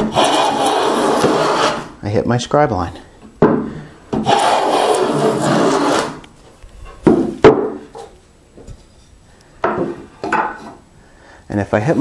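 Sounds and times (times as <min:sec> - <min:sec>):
plane shaving a board: 0:00.0 - 0:01.9, 0:04.2 - 0:06.2
sharp wooden knocks: 0:03.4 - 0:04.5, 0:07.0 - 0:08.1, 0:09.6 - 0:10.8.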